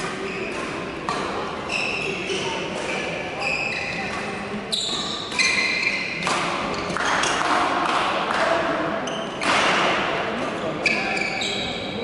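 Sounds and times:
racket hitting shuttlecock: 0.0s - 10.2s
shoes squeaking on floor: 0.2s - 0.7s, 1.6s - 7.4s, 9.0s - 9.6s, 10.6s - 12.0s.

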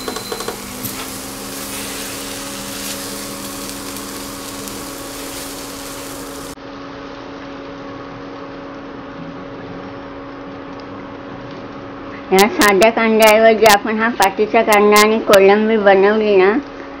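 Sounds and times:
prawns sizzling in a pan: 0.0s - 6.6s
steady low hum: 0.0s - 6.6s.

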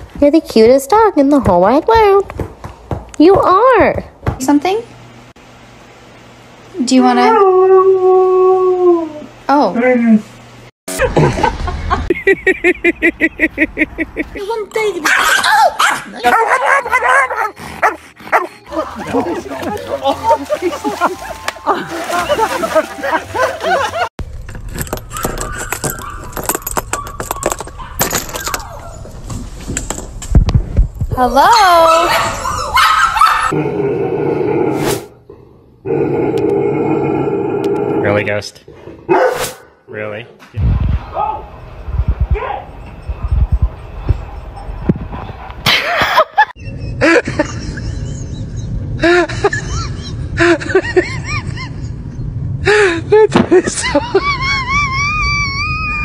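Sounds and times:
small dog barking: 15.0s - 18.5s, 31.8s - 33.5s, 39.1s - 39.4s
keys jangling in door lock: 24.7s - 28.7s.

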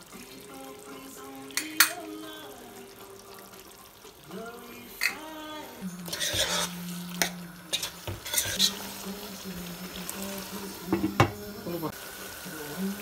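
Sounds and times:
sizzling hiss: 0.0s - 13.0s
spoon clicking against pot: 1.6s - 2.0s
spoon stirring curry in pot: 6.1s - 8.7s.

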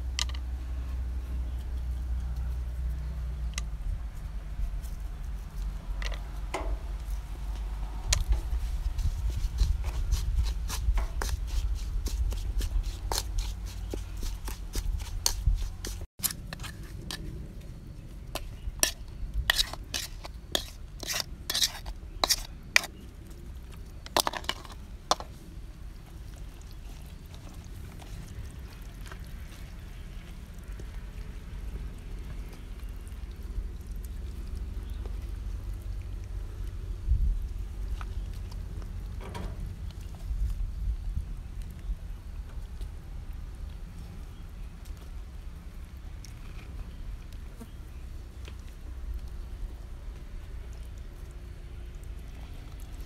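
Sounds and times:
wooden spoon stirring and scraping: 4.8s - 17.6s, 18.2s - 30.1s.

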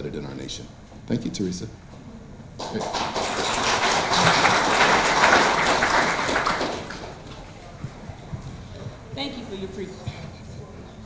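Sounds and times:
audience applauding: 2.6s - 7.6s.

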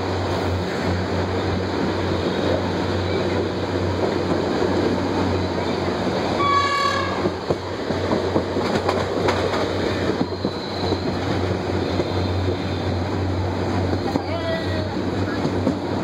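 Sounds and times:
train rumbling along track: 0.0s - 16.0s
train horn blast: 6.4s - 7.3s
wheels clicking over rail joints: 6.6s - 12.6s.

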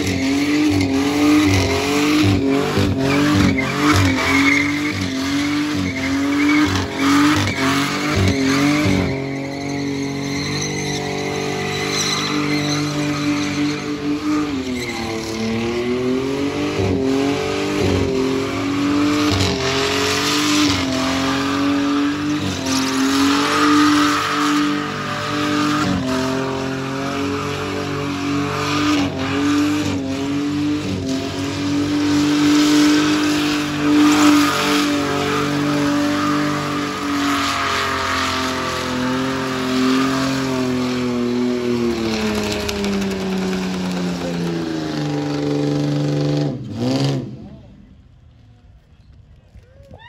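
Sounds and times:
tyres squealing: 0.0s - 16.0s
car engine revving high: 0.0s - 47.4s.

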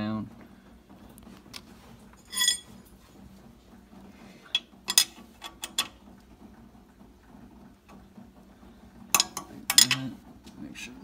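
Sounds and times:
wrench clinking on metal: 2.3s - 2.8s.

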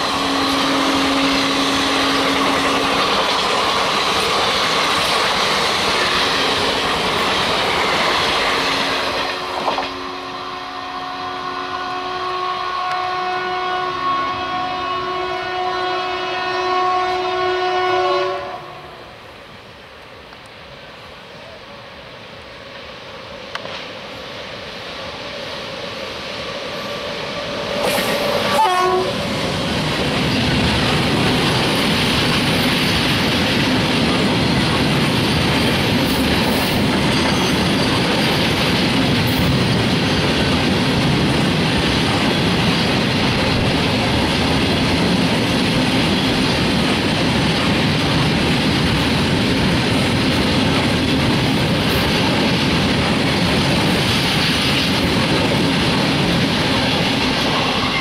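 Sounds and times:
train horn: 0.0s - 3.3s, 5.9s - 7.0s, 8.4s - 19.3s, 26.6s - 29.5s, 57.5s - 58.0s
train wheels rolling on rails: 0.0s - 10.9s, 19.2s - 58.0s.

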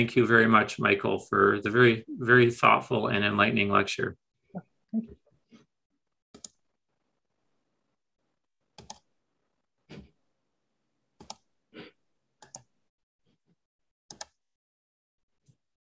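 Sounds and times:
computer clicks: 6.4s - 6.6s, 8.8s - 9.1s, 11.2s - 11.5s, 12.4s - 12.7s, 14.1s - 14.4s.

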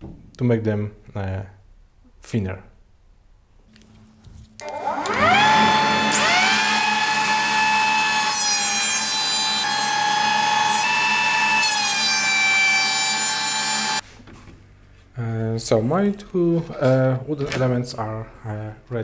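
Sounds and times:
thickness planer motor whine: 4.6s - 14.0s
board being planed rasp: 5.2s - 14.0s.

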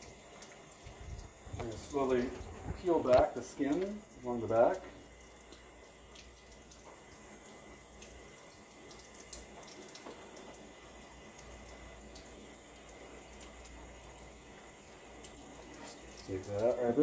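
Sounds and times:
tap running into sink: 0.9s - 4.0s.

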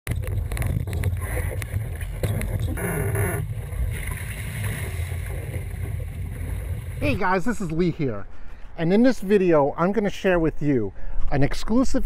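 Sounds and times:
boat hull rushing through water: 0.1s - 7.4s
water splashing spray: 3.5s - 7.1s.

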